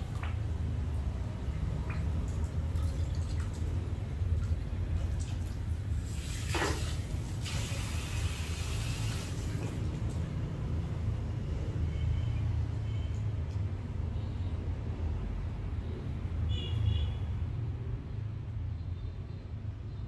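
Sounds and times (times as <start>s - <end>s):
water spraying: 1.6s - 10.3s.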